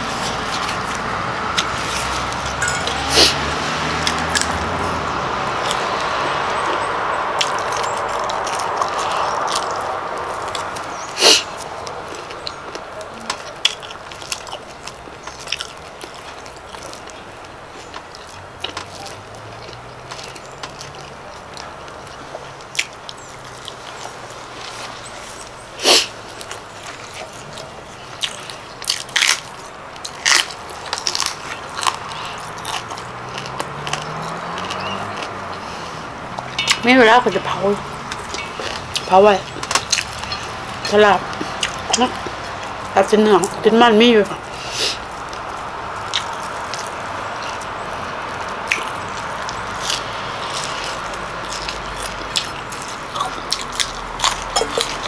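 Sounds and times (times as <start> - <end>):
chewing and crunching vegetables: 0.0 - 55.0
mouth clicks: 48.4 - 55.0.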